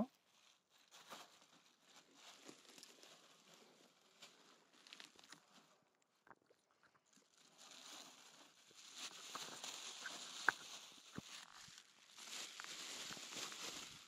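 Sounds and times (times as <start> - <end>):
dog rustling in shrubs: 7.6 - 14.0
dog tearing at leaves: 8.8 - 13.8.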